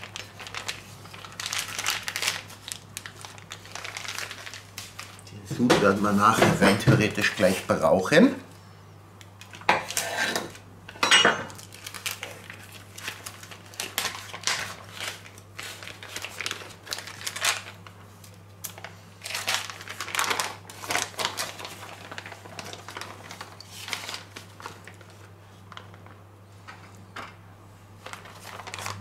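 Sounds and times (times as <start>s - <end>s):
plastic bag crinkling: 0.0s - 6.3s, 11.5s - 26.2s, 28.0s - 29.0s.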